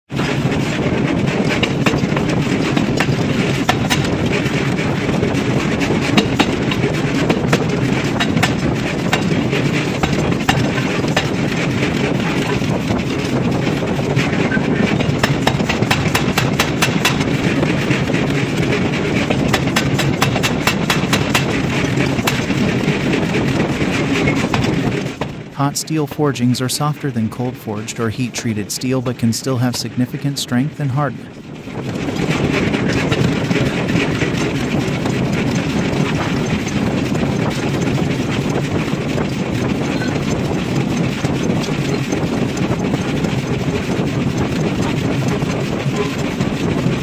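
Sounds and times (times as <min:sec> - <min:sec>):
loud machine noise: 0:00.1 - 0:47.0
power hammer striking steel: 0:10.0 - 0:11.4, 0:15.2 - 0:17.3, 0:19.5 - 0:21.6.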